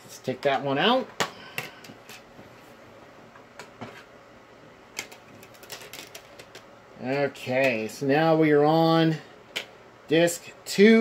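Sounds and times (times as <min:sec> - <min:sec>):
disc player clicks and plastic clatter: 0:05.0 - 0:06.7.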